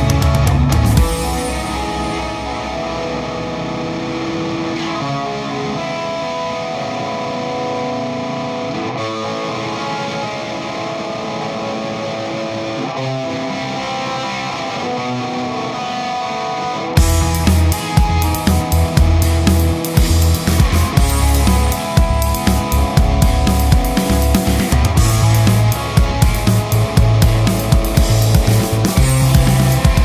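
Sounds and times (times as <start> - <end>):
heavy low beats: 0.0 - 4.3, 17.0 - 30.0
rock music with electric guitar: 0.0 - 30.0.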